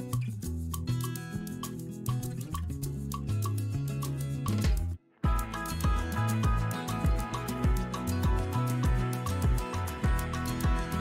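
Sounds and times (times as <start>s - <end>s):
music with beat and bass: 0.0s - 11.0s.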